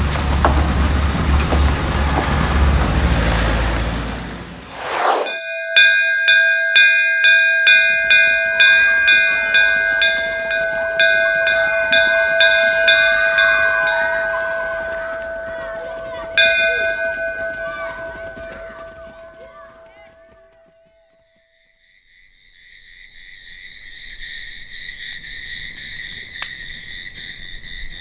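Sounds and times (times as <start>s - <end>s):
vehicle engine rumbling past: 0.0s - 5.3s
school bell struck: 5.3s - 21.2s.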